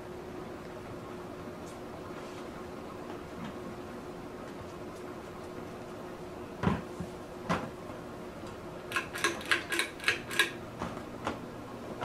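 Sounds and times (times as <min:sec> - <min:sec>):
ceiling fan motor hum: 0:00.0 - 0:12.0
sharp clicks and knocks: 0:08.8 - 0:11.4.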